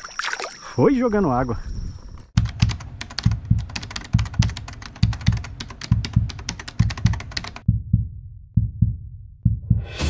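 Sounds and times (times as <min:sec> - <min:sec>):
sharp ticking clicks: 0:02.4 - 0:07.7
low heartbeat-like thumps: 0:02.4 - 0:10.0.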